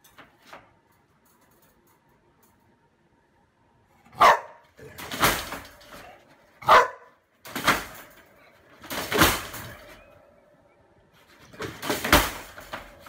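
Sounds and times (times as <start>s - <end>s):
dog barking: 4.1s - 4.7s, 6.6s - 7.2s.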